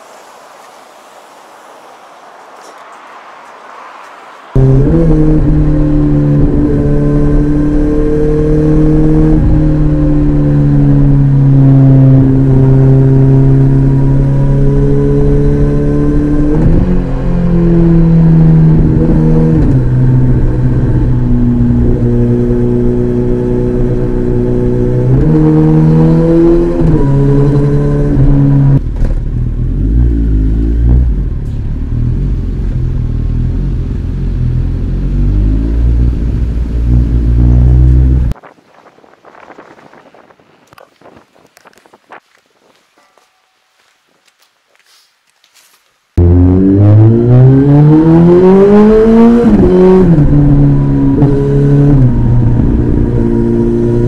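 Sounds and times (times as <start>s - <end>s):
motorcycle engine revving: 4.6s - 38.4s, 46.2s - 54.0s.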